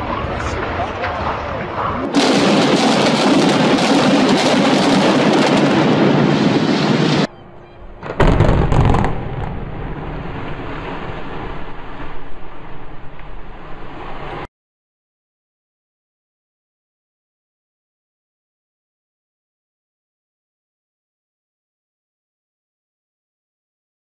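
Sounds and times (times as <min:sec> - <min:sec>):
rumble of building collapse: 0:00.0 - 0:07.3, 0:08.0 - 0:12.9
loud demolition blast: 0:02.0 - 0:07.3, 0:08.0 - 0:12.0.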